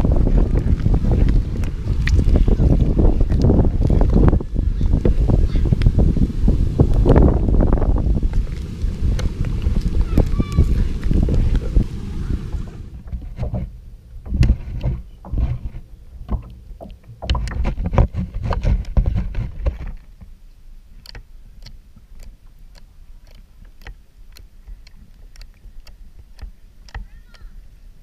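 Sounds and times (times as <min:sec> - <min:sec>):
slime crackling and squelching: 0:06.8 - 0:12.5
sticky clicks of poked slime: 0:21.0 - 0:27.4.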